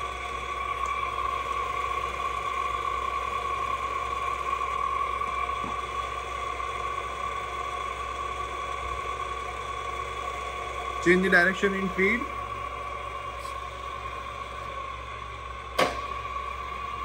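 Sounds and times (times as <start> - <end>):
drill mechanical whine: 0.0 - 17.0.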